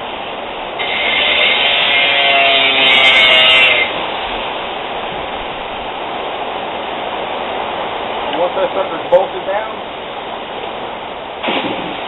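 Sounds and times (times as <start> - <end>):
background hiss: 0.0 - 12.0
power tool whining: 0.8 - 3.9.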